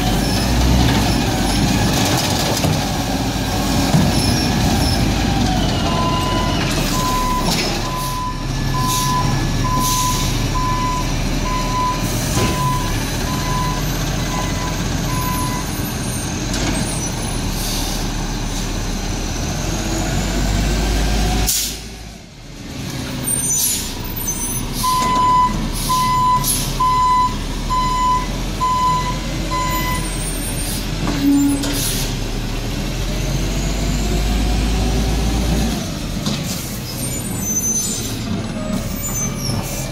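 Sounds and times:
garbage truck diesel engine running: 0.0s - 21.0s
air brake hisses: 21.5s - 21.9s, 31.6s - 32.2s
backup alarm beeping: 24.8s - 30.0s.

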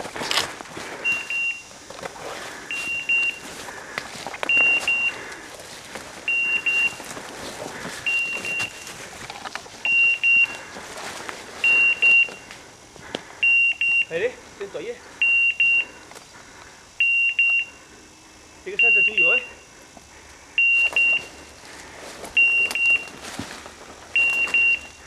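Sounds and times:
twigs snapping under footsteps: 0.0s - 1.1s, 1.7s - 13.3s, 20.0s - 24.9s
rustling brush and leaves: 0.0s - 13.4s, 19.7s - 25.0s
beeper collar high beeps: 1.0s - 1.7s, 2.7s - 3.5s, 4.4s - 5.3s, 6.2s - 7.1s, 8.0s - 9.0s, 9.8s - 10.7s, 11.6s - 12.5s, 13.4s - 14.4s, 15.2s - 16.0s, 17.0s - 17.8s, 18.6s - 19.7s, 20.6s - 21.6s, 22.4s - 23.2s, 24.1s - 25.0s.

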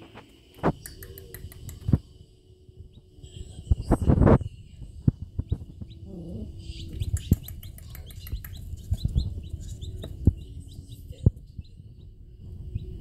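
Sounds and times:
baby chicks peeping: 2.8s - 13.0s.

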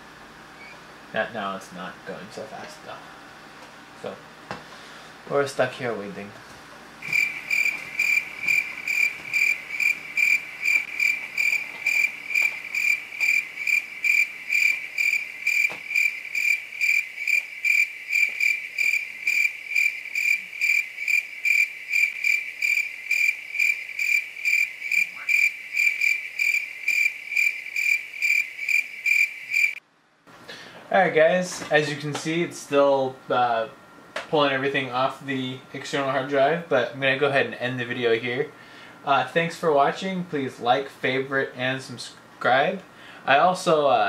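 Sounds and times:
cricket chirping: 7.0s - 29.8s.

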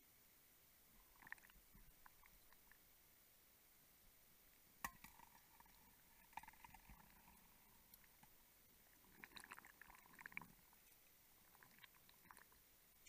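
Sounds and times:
faint underwater ticks: 1.0s - 2.9s, 4.8s - 13.0s.

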